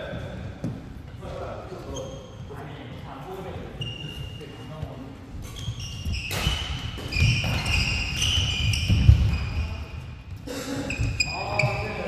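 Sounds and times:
shoes squeaking on court floor: 0:00.1 - 0:12.0
racket striking shuttlecock: 0:06.3 - 0:09.3.

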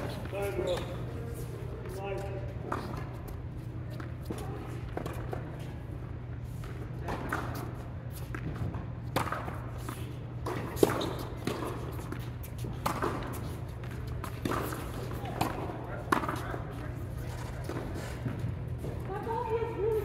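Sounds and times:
steady low hum: 0:00.0 - 0:20.0
tennis ball bouncing on hard court: 0:03.9 - 0:05.7, 0:06.5 - 0:19.1
tennis ball hit with rackets: 0:06.6 - 0:18.5.

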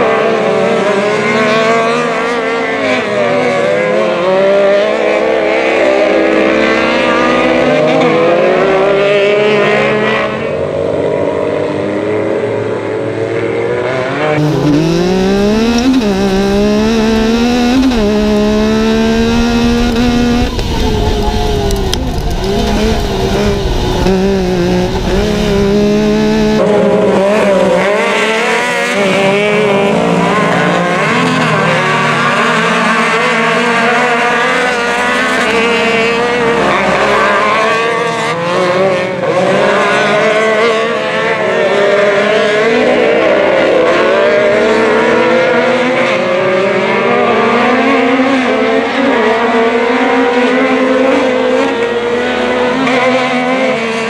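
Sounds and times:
racing engines revving: 0:00.0 - 0:54.0
engine running hard inside cab: 0:14.4 - 0:26.6.

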